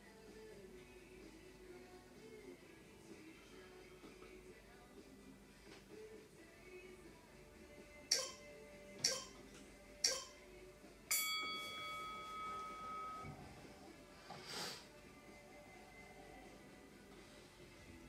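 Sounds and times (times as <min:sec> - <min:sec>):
timer ticks: 0:08.1 - 0:08.4, 0:10.0 - 0:10.4
bell-like chime: 0:11.1 - 0:13.4.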